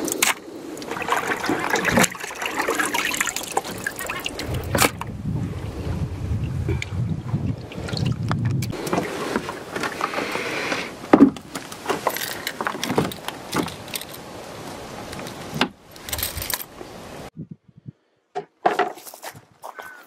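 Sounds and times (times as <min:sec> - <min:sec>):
keys jingling: 0:16.0 - 0:16.7.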